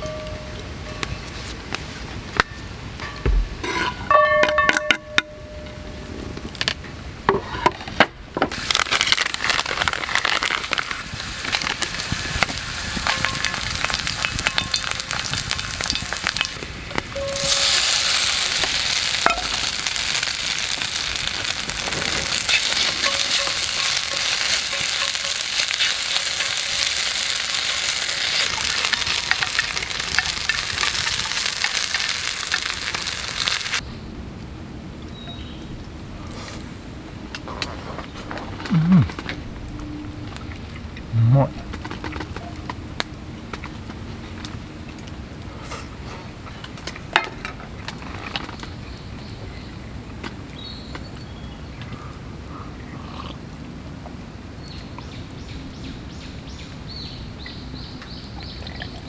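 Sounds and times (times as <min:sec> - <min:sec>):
garlic sizzling in hot oil: 0:08.5 - 0:33.8.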